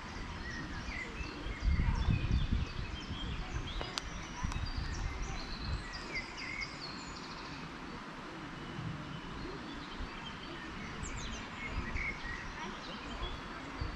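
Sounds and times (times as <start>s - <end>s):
low microphone rumble: 0.0s - 13.9s
songbirds chirping and singing: 0.0s - 13.9s.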